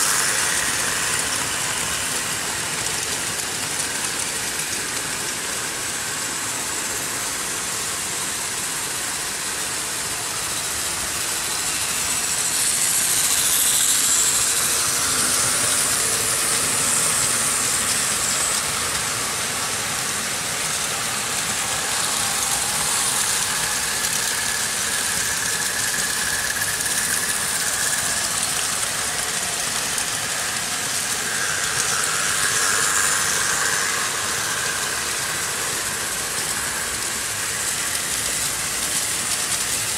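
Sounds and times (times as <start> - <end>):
model trains rolling on metal track: 0.0 - 39.9.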